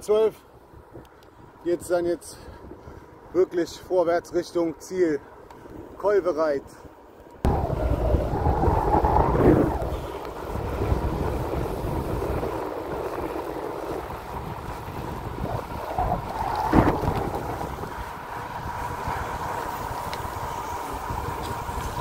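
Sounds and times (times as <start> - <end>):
wind buffeting microphone: 6.7 - 22.0.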